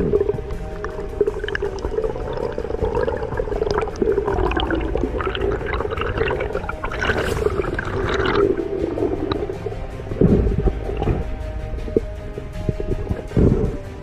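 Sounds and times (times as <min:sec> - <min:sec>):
water gushing: 0:00.0 - 0:12.0
muffled underwater rush: 0:00.0 - 0:14.0.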